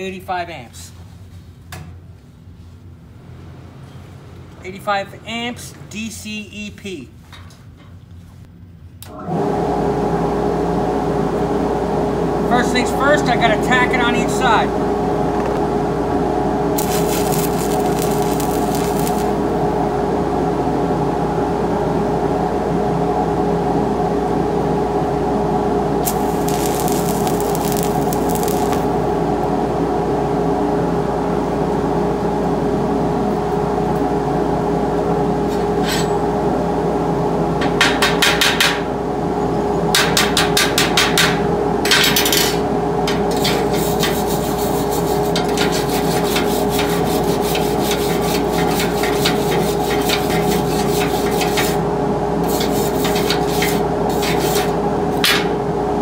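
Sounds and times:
welding machine hum: 16.5s - 19.8s, 25.9s - 29.5s, 43.0s - 55.3s
electric arc crackling: 16.8s - 19.4s, 26.0s - 28.9s.

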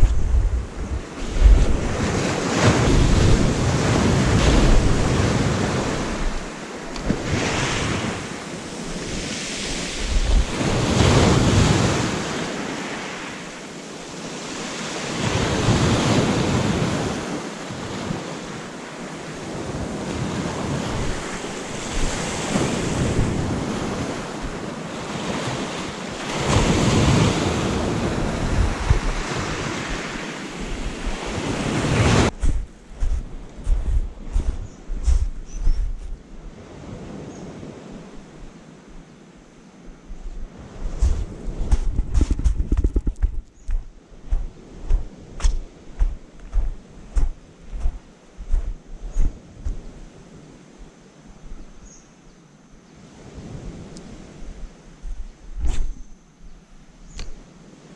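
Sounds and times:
wind buffeting microphone: 0.0s - 12.4s, 19.4s - 39.0s, 39.9s - 51.9s, 53.1s - 57.4s
sea waves breaking on shore: 0.0s - 39.4s.

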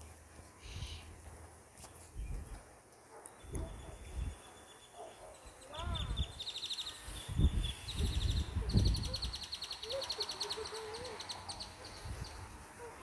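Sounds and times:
wind rumble on microphone: 7.2s - 9.4s.

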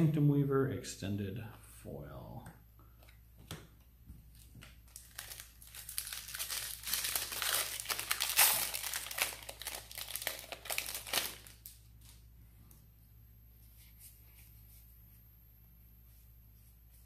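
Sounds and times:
wrapper crinkling and tearing: 4.4s - 12.2s.

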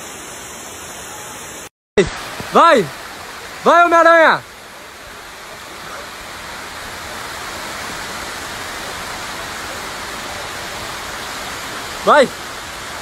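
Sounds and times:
waterfall rushing over rocks: 0.0s - 13.0s.

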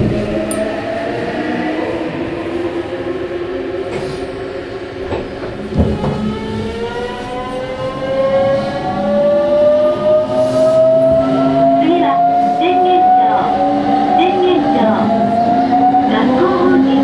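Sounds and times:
train clunks: 0.0s - 0.8s, 3.8s - 4.4s, 5.0s - 8.7s.

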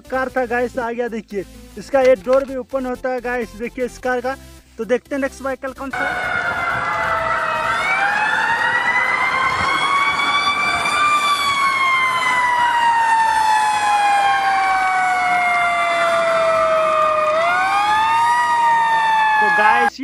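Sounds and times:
fire engine siren wailing: 5.9s - 20.0s
second siren tone: 6.0s - 19.9s.

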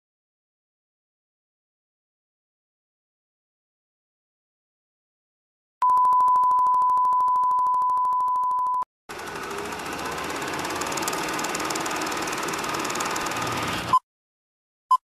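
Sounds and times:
film projector clattering: 9.1s - 13.9s.

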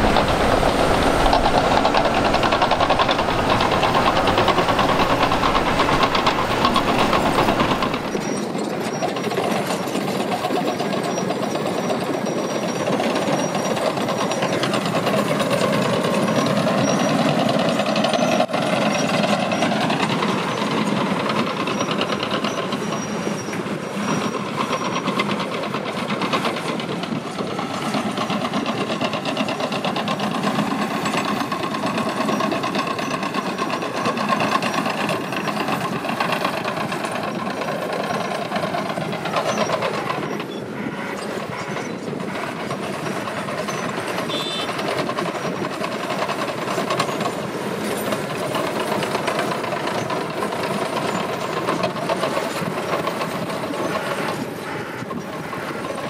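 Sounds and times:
deep low rumble: 0.0s - 8.2s
diesel machinery engines working: 0.0s - 56.0s.

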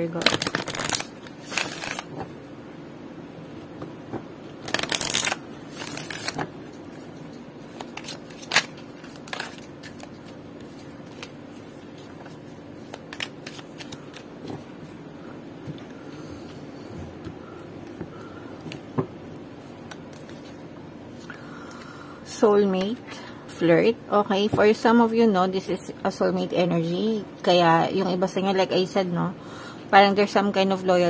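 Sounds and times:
cards shuffled by hand: 0.2s - 2.2s, 4.6s - 7.0s, 7.7s - 14.7s.

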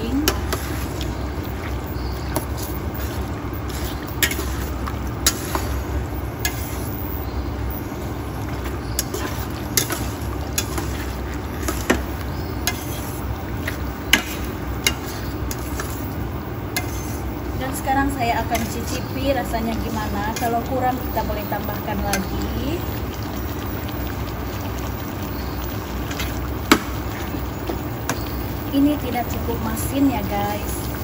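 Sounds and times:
spatula scraping metal pot: 2.3s - 5.8s, 12.6s - 17.3s.

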